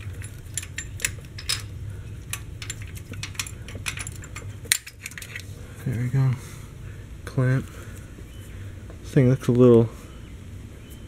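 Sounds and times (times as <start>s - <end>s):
light metallic clinks and rattles: 0.0s - 5.5s.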